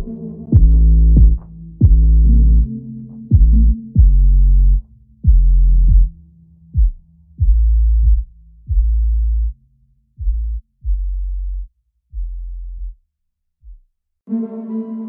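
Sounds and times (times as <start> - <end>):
sustained synth chord: 0.0 - 4.0
deep bass notes: 0.0 - 13.0.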